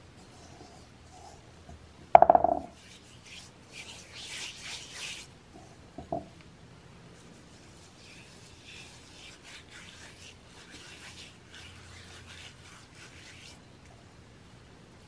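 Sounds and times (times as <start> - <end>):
gritty salt scrub rubbing skin: 2.7 - 5.3, 7.2 - 13.6.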